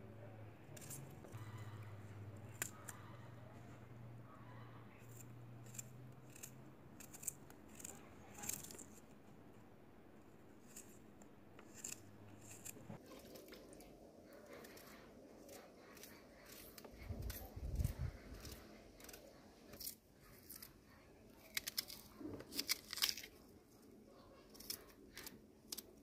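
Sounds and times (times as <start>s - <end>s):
faint low hum: 0.0s - 26.0s
knife slicing onion: 5.0s - 9.2s, 10.6s - 13.0s.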